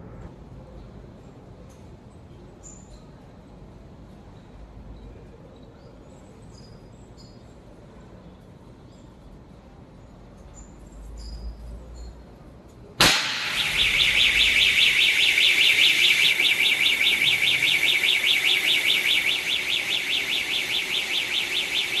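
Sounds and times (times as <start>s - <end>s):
sharp pop of tube bursting: 13.0s - 14.2s
loud steady hiss of discharge: 13.0s - 22.0s
fire alarm warbling tone: 13.4s - 22.0s.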